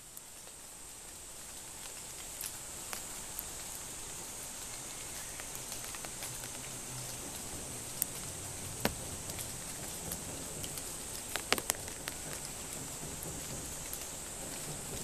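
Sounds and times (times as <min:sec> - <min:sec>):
high-pitched hiss: 0:00.0 - 0:15.0
light ticks: 0:01.8 - 0:03.8.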